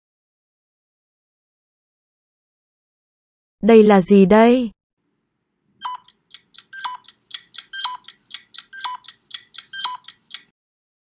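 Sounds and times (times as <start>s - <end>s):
countdown ticking: 5.8s - 10.5s.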